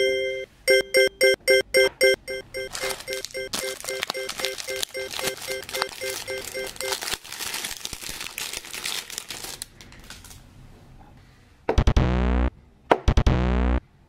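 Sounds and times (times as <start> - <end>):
plastic wrapping crackling: 2.6 - 10.4.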